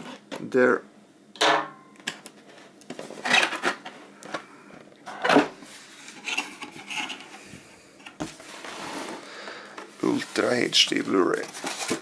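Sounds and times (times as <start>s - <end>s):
cardboard box rustling and scraping: 8.2s - 9.3s, 10.0s - 12.0s.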